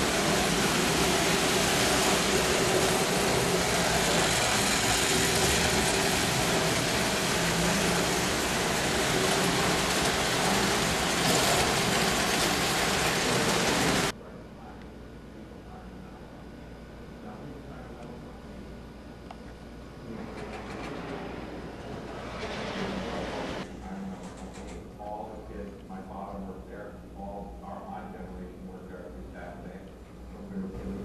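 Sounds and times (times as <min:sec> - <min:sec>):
toy trains rumbling on metal track: 0:00.0 - 0:14.1.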